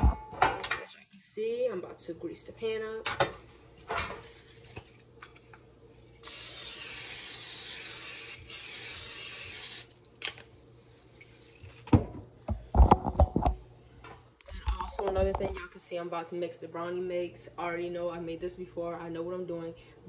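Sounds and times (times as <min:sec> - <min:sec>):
aerosol spray hissing: 0:06.2 - 0:09.9.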